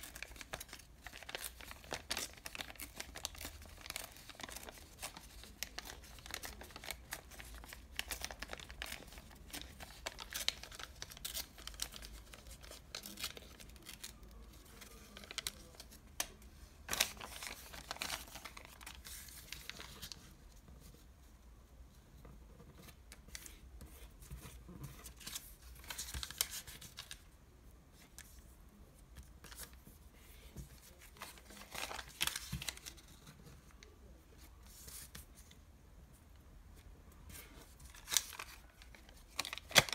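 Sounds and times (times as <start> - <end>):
thin paper crinkling: 0.0 - 20.3, 24.2 - 27.2, 29.4 - 33.4, 37.3 - 39.9.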